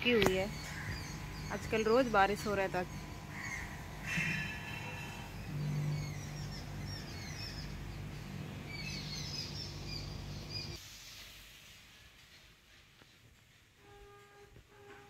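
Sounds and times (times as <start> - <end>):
small birds chirping: 0.0 - 10.8
steady low hum: 0.0 - 10.8.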